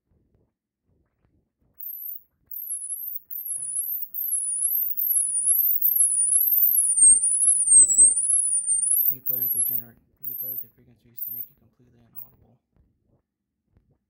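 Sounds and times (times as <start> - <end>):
shrill sweeping whine: 1.8 - 10.6, 11.2 - 11.5.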